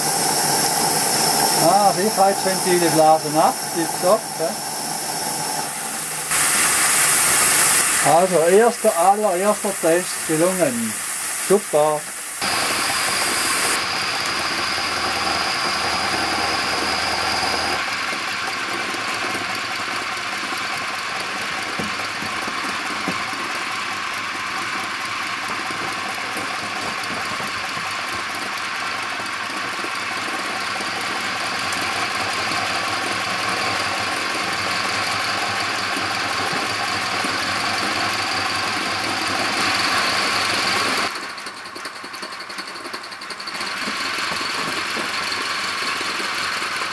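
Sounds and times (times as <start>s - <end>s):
safety valve whistling: 0.0s - 17.8s
steam hissing: 0.0s - 18.1s, 21.0s - 41.1s, 43.3s - 46.9s.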